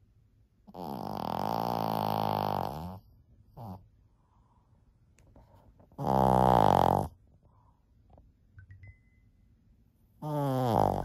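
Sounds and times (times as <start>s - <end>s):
dog snoring loudly: 0.7s - 3.8s, 6.0s - 7.2s, 10.2s - 11.0s.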